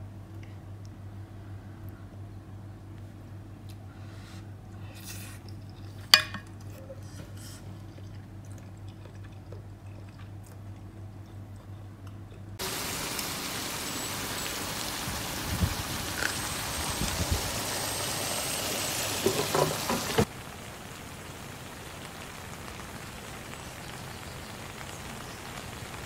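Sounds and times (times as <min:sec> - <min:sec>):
faint low hum: 0:00.0 - 0:18.3
steady hiss: 0:12.6 - 0:26.0.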